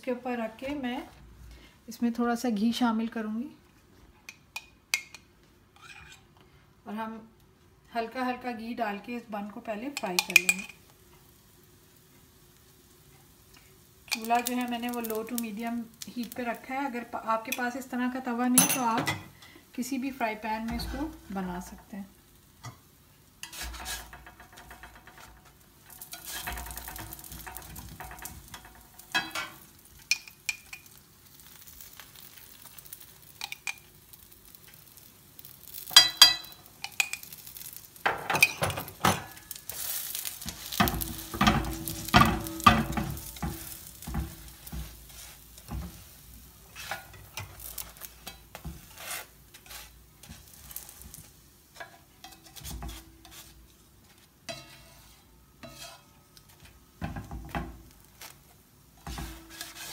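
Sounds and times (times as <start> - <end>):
metal spoon scraping and clinking: 5.8 - 6.2, 26.0 - 30.9, 35.8 - 37.4, 51.8 - 53.5, 54.5 - 56.1
buns sizzling on a griddle: 8.4 - 59.9.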